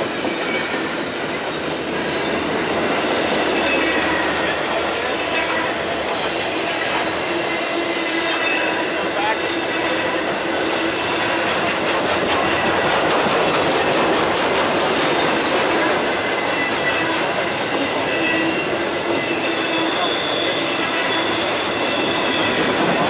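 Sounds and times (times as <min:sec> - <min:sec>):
faint wheel squeal: 0:00.0 - 0:02.4, 0:17.8 - 0:22.8
train wheels rumbling on rails: 0:00.0 - 0:23.0
wheels clicking over rails: 0:11.5 - 0:16.0.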